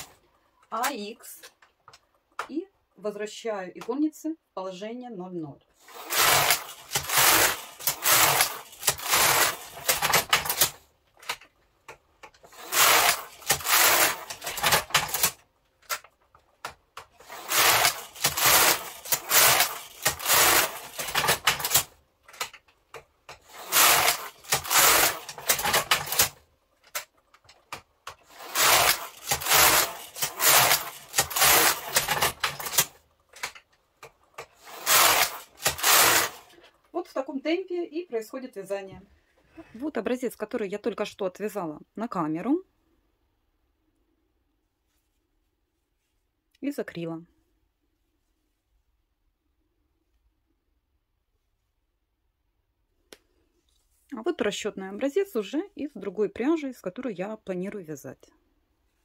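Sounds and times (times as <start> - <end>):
knitting machine carriage clattering: 5.8 - 36.6.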